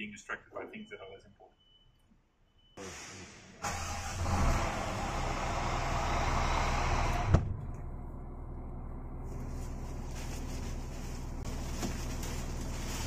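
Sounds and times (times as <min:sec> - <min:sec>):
truck diesel engine idling: 0:07.8 - 0:11.6.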